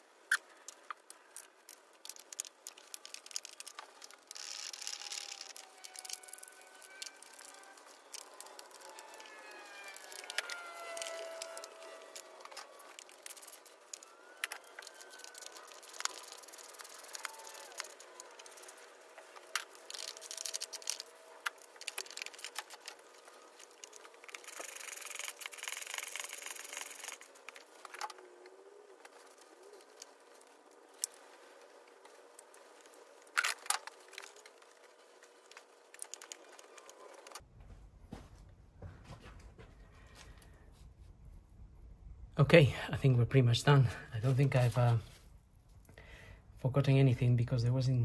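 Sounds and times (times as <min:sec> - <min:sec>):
scraping and rustling: 0:00.6 - 0:37.4.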